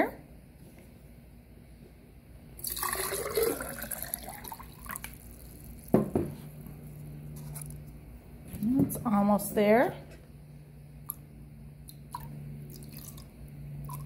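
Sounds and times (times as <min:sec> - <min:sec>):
water pouring into glass jar: 0:02.6 - 0:05.9, 0:12.0 - 0:14.0.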